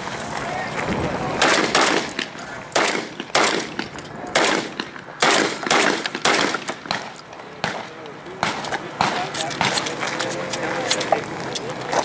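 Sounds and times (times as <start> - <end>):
pistol shots with echo: 1.4 - 10.0.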